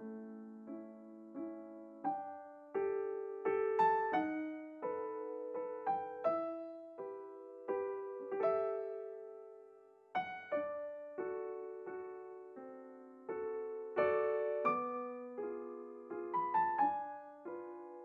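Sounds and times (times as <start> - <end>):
slow solo piano music: 0.0 - 18.0.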